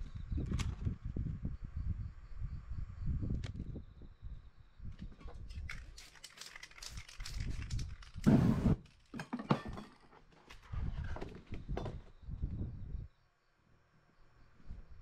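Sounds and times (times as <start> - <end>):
clicks and rattles: 5.0 - 10.6
whoosh of flame: 7.3 - 8.8.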